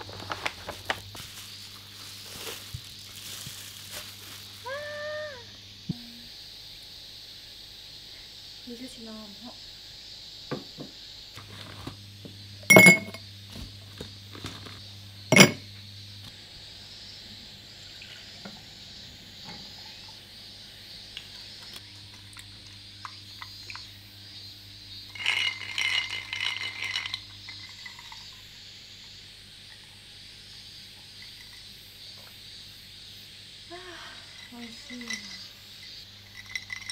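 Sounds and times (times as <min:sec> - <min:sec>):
sharp glass clinks: 0:12.7 - 0:13.2, 0:15.3 - 0:15.6.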